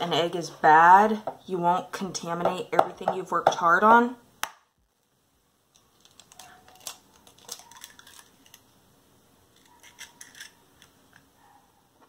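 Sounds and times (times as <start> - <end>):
eggshell cracking: 5.7 - 8.7, 9.5 - 11.3.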